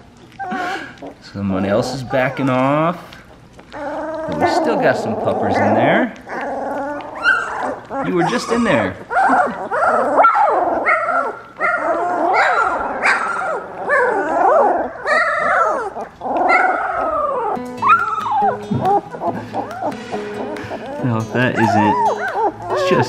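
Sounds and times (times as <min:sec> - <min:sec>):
puppies whining and yipping: 0:00.0 - 0:23.0
music: 0:17.6 - 0:23.0.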